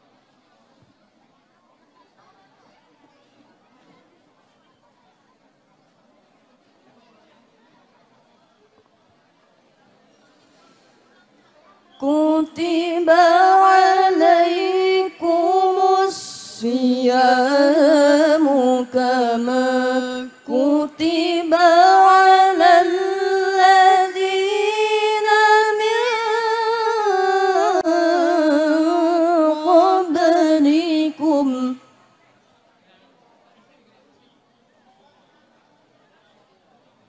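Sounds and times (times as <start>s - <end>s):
woman chanting into a microphone: 12.0s - 32.1s.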